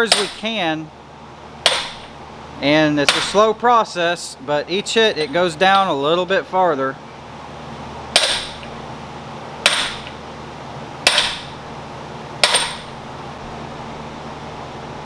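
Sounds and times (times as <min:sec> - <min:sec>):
hammer striking metal socket: 0:11.1 - 0:11.5, 0:12.4 - 0:12.9.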